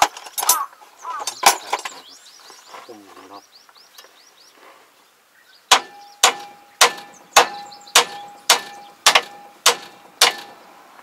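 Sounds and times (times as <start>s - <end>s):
hammer striking steel: 5.7s - 10.6s.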